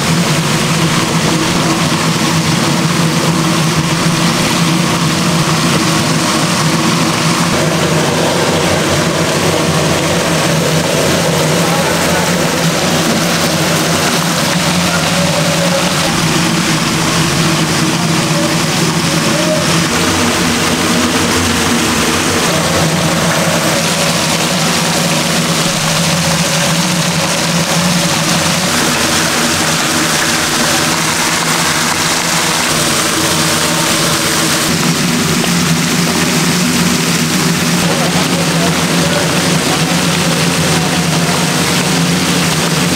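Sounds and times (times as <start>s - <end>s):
machine drone: 0.0s - 42.9s.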